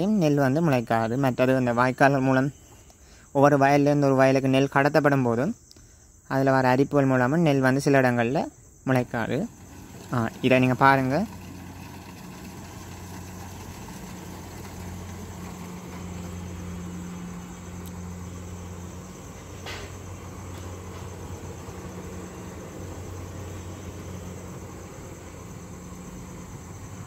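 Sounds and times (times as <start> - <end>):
combine harvester engine hum: 8.9 - 27.0.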